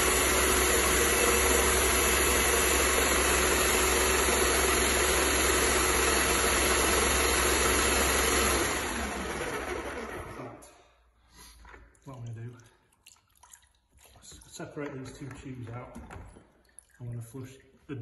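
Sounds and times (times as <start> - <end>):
paint sprayer pump humming: 0.0 - 10.6.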